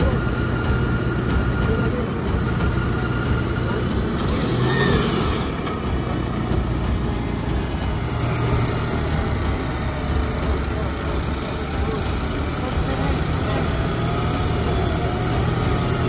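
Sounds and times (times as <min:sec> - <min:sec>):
thin high squeal: 0:00.0 - 0:05.7
engine running: 0:00.0 - 0:16.0.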